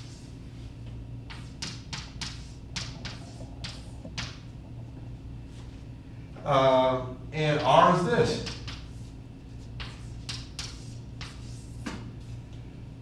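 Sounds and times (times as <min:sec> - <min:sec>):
steady low hum: 0:00.0 - 0:13.0
chalk tapping and scraping on blackboard: 0:01.2 - 0:04.5, 0:08.3 - 0:12.3.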